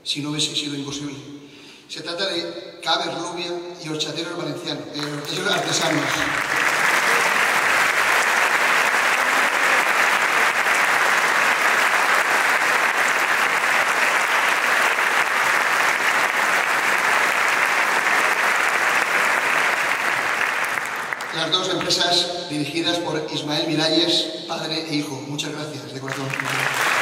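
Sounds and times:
audience applauding: 0:05.0 - 0:22.0, 0:26.0 - 0:27.0.

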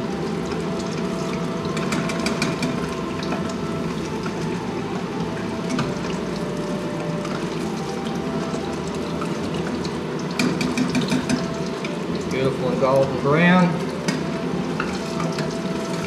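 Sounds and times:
fish deep-frying in hot oil: 0:00.0 - 0:16.0.

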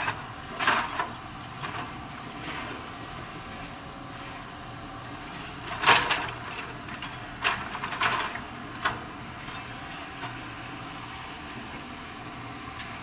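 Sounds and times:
excavator grapple clanking on steel: 0:00.0 - 0:02.9, 0:05.2 - 0:10.6
machine engine hum: 0:00.0 - 0:13.0.

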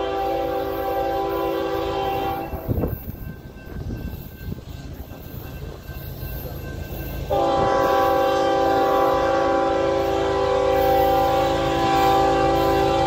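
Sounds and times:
locomotive air horn blast: 0:00.0 - 0:02.9, 0:07.3 - 0:13.0.

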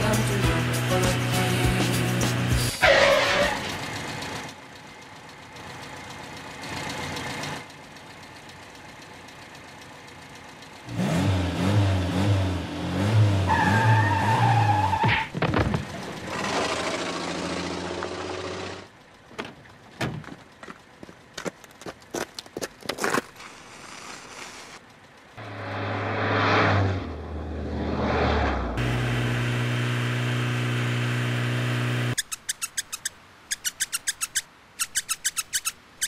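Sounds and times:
wavering squeal: 0:02.8 - 0:03.8
car engine starting and revving: 0:10.1 - 0:18.9, 0:24.9 - 0:32.2.

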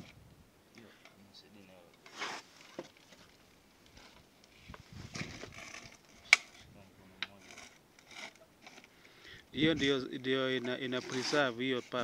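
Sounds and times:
handling rustle: 0:01.8 - 0:09.0.

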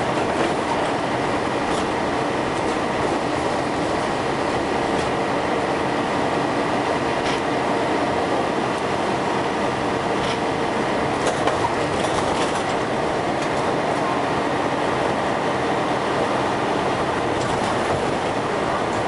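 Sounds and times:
bus body rattling: 0:00.0 - 0:05.5, 0:07.0 - 0:07.6, 0:09.7 - 0:14.2, 0:16.9 - 0:19.0
bus engine running: 0:00.0 - 0:19.0
road noise: 0:00.0 - 0:19.0.

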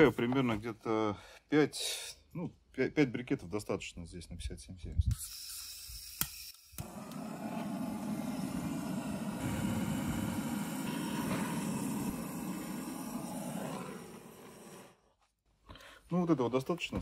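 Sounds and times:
rushing flame: 0:06.8 - 0:15.1.

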